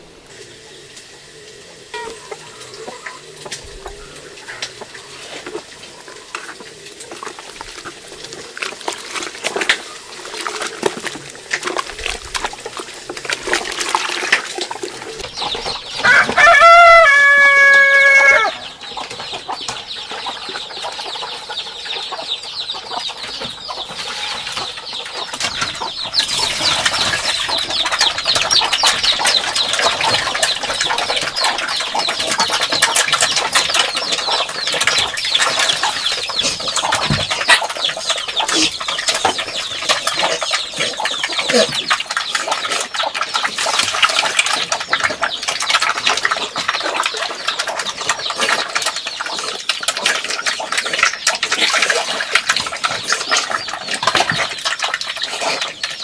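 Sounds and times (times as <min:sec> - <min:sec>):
rooster crowing: 0:16.0 - 0:18.7.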